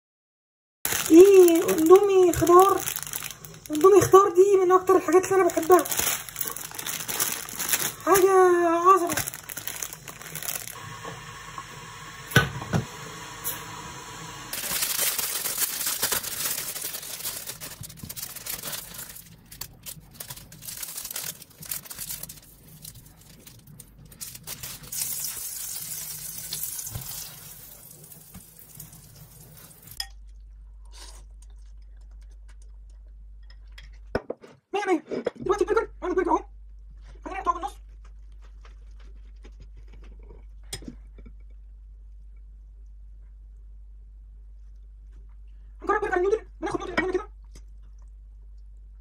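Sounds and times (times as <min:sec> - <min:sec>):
water boiling in a pan: 0:22.2 - 0:30.1.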